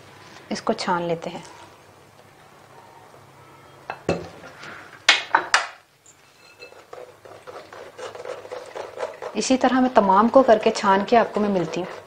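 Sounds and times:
kitchenware knocking and clinking: 3.9 - 4.4
metal spoon scraping a strainer: 6.1 - 12.0.

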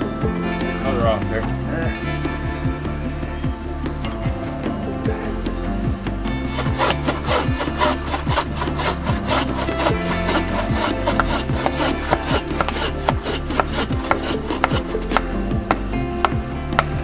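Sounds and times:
bow saw rasping through wood: 6.4 - 17.0.

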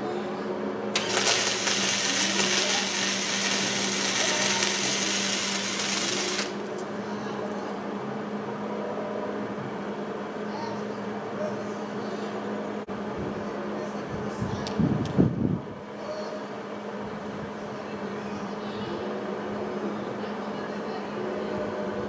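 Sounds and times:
steady electrical hum: 0.0 - 17.5
welding arc crackling and sizzling: 1.0 - 6.9.

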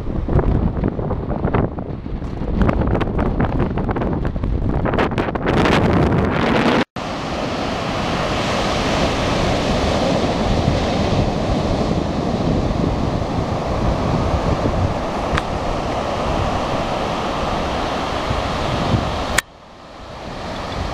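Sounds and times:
wind buffeting microphone: 0.0 - 20.9
ocean surf breaking: 6.5 - 20.9.

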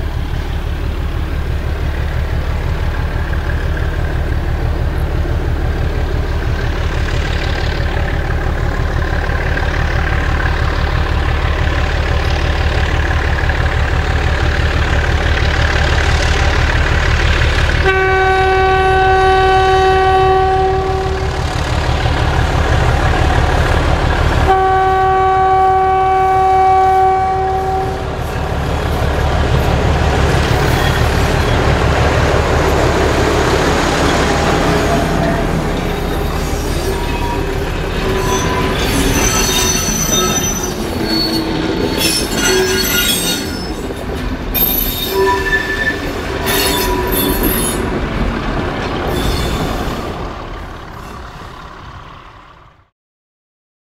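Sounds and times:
diesel locomotive engine throbbing: 0.0 - 52.9
locomotive horn blasts: 17.8 - 21.4, 24.4 - 28.1, 45.0 - 47.8.

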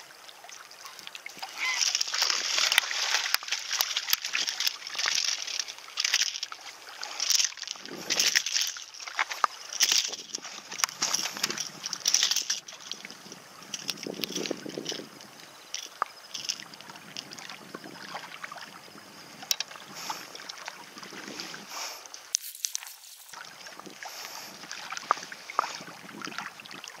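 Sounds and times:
handling clicks and knocks: 7.2 - 13.1, 13.7 - 15.0, 15.7 - 17.3
steady hiss: 18.4 - 26.0.

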